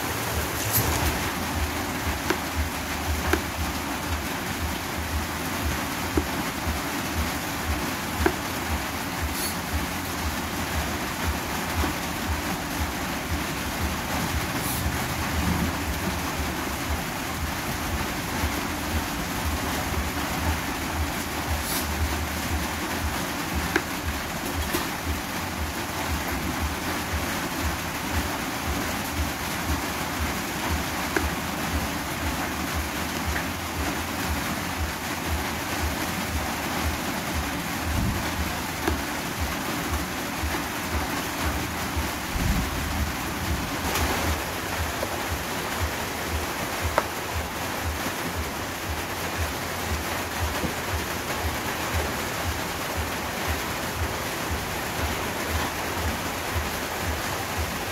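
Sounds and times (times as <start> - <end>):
steady rushing noise: 0.0 - 57.9
cleaver chopping on plastic board: 2.1 - 2.5, 3.3 - 3.5, 6.2 - 6.4, 8.2 - 8.4, 23.6 - 23.9.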